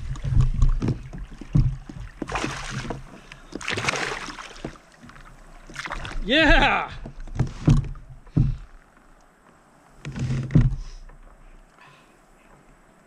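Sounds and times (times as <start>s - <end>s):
fish splashing at the surface: 2.2s - 6.2s
low thumps: 5.8s - 8.8s.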